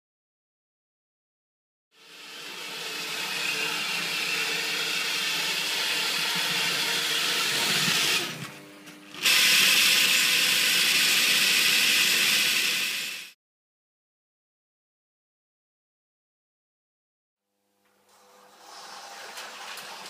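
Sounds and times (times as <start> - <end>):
model train motor whirring: 2.0 - 8.5, 9.2 - 13.4.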